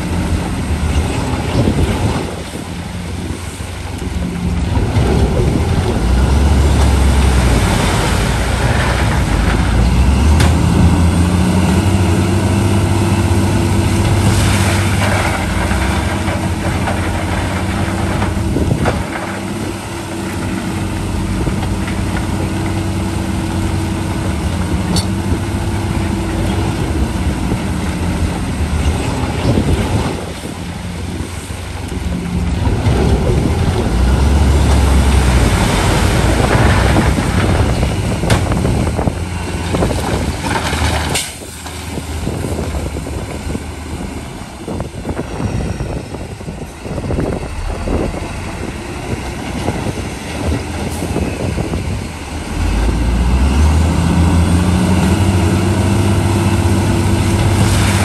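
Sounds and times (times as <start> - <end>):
heavy diesel engine working: 0.0 - 58.0
clatter and scraping: 4.7 - 11.8, 13.8 - 22.8, 28.7 - 43.3, 57.2 - 58.0
sharp bang: 47.0 - 51.2.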